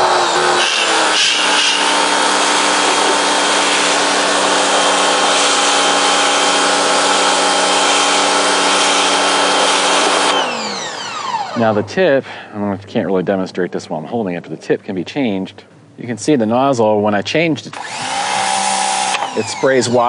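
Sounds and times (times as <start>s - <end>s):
pressure washer motor humming: 0.0s - 12.0s, 17.7s - 20.0s.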